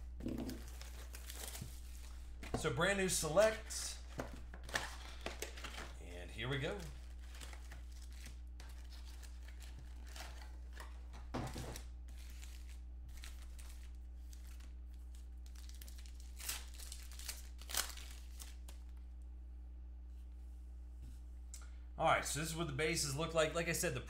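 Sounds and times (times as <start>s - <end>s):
foil wrappers crinkling and tearing: 0.3s - 2.4s, 3.2s - 19.0s.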